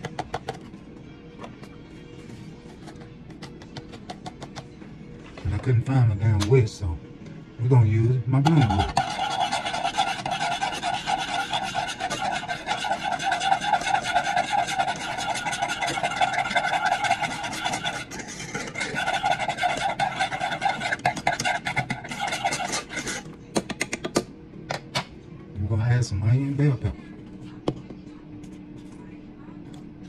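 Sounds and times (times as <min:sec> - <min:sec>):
wire whisk scraping a pan: 0:08.4 - 0:23.3.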